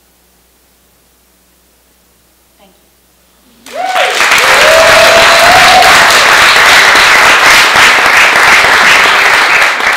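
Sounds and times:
person whooping: 3.6 - 6.2
audience applause: 3.6 - 9.9.

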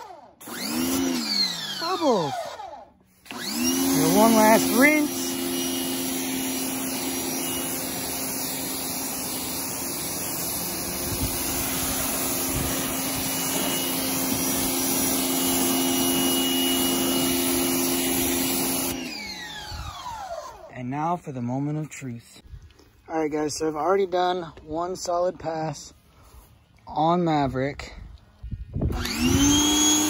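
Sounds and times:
pressure washer motor humming: 0.0 - 20.7, 28.9 - 30.0
water jet spraying on metal: 3.9 - 18.9.

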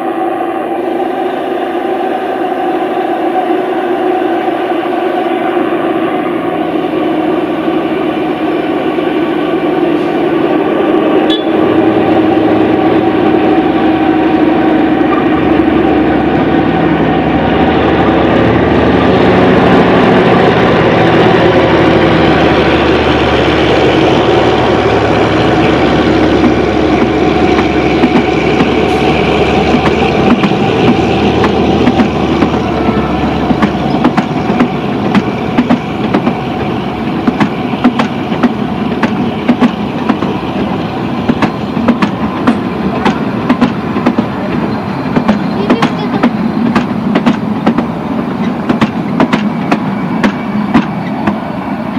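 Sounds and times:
diesel locomotive engine: 0.0 - 51.9
wheels clicking over rail joints: 41.3 - 51.4.

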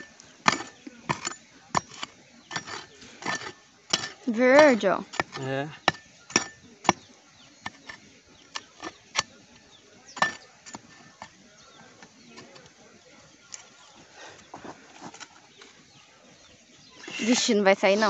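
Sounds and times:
hoe chopping dry dirt: 0.0 - 14.0.

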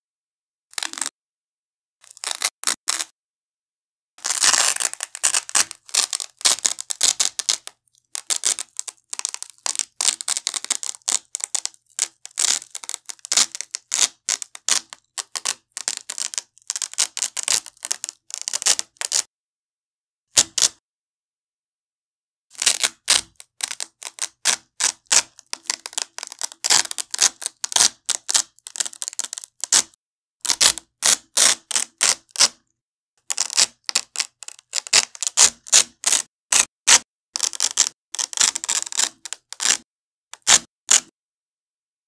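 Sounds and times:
velcro strap ripping: 0.7 - 1.2, 2.0 - 3.2, 4.2 - 19.3, 20.4 - 20.8, 22.6 - 32.6, 33.3 - 41.1.

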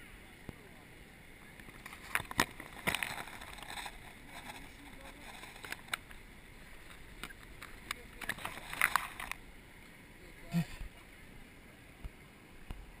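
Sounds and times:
branches brushing against camera: 1.6 - 9.4.

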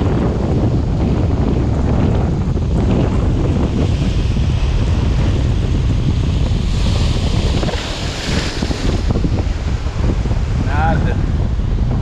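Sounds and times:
wind buffeting the microphone: 0.0 - 12.0
surf breaking on rocks: 3.7 - 11.2.

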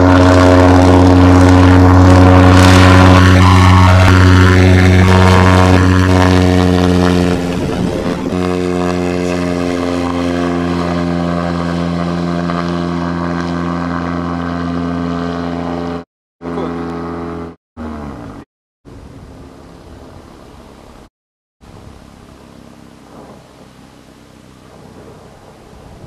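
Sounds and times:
ultralight engine and propeller drone: 0.0 - 26.0.

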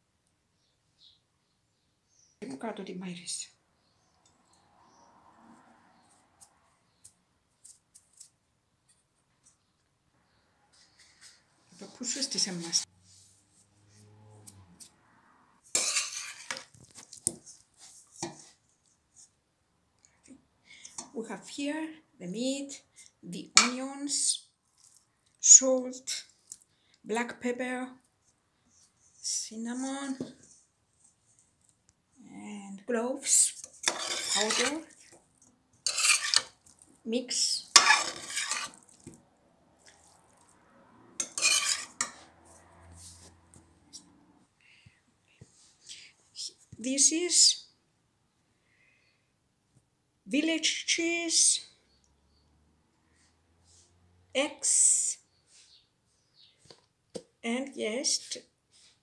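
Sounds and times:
metal spoon scraping a pot: 15.7 - 16.8, 33.2 - 35.2, 35.8 - 39.2, 41.2 - 43.3.

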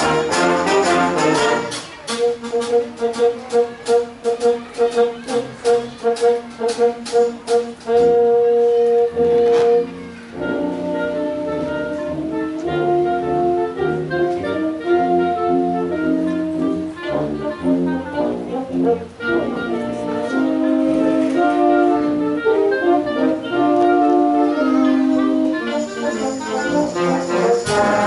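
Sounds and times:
percussion hits: 0.0 - 4.6, 5.6 - 8.2, 25.7 - 28.0
concert wind band playing: 0.0 - 28.0.

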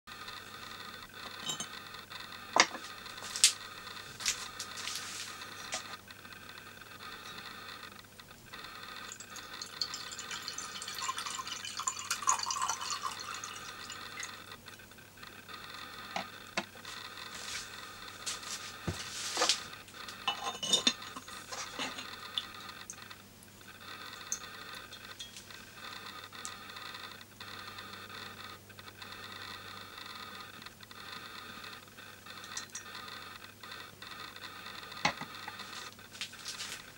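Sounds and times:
water pouring into teapot: 9.1 - 14.4, 32.4 - 32.9
thin stream pouring: 9.3 - 14.2
clay lid clinking: 20.3 - 22.1.

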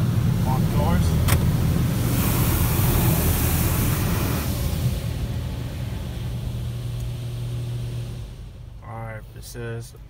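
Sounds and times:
water jets spraying car: 0.0 - 7.3
steady low hum: 0.0 - 10.0.

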